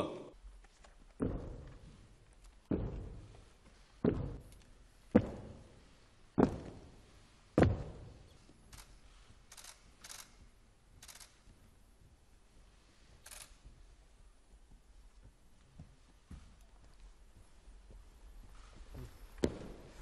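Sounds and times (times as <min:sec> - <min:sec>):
boots marching on hall floor: 0:01.0 - 0:08.3, 0:14.5 - 0:20.0.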